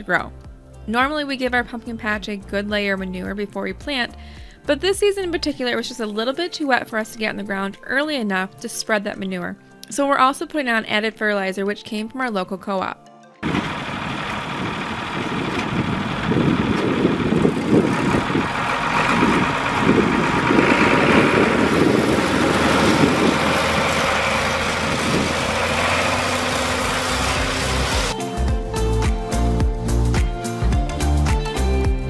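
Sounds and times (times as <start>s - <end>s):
tractor engine running: 13.4s - 28.2s.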